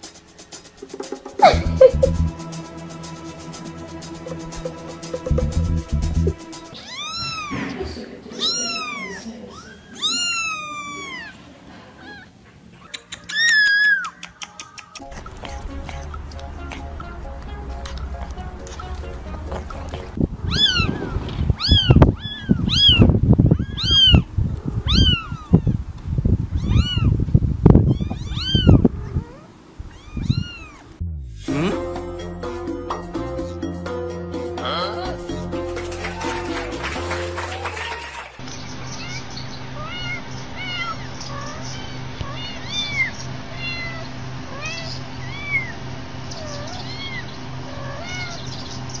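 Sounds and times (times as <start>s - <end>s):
kittens mewing: 6.7s - 15.0s, 20.3s - 27.2s, 27.8s - 32.0s, 39.0s - 48.6s.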